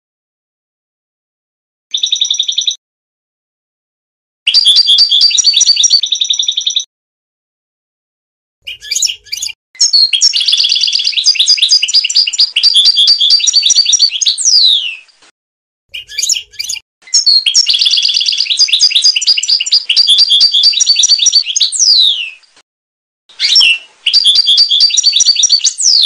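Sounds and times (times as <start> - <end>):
goldfinch twittering song: 4.5 - 6.9, 8.6 - 15.1, 15.9 - 22.5, 23.3 - 26.0.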